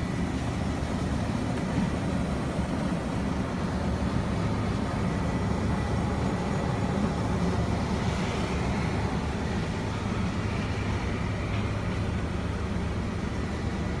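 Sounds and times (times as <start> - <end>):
diesel truck engine idling: 0.0 - 14.0.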